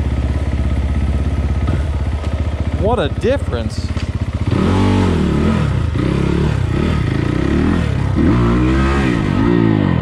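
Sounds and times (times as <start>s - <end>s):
dirt bike engine revving: 1.1s - 10.0s.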